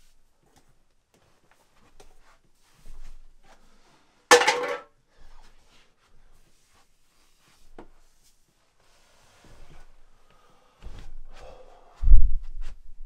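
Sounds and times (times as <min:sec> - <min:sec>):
can crushed underfoot: 0:04.3 - 0:04.9.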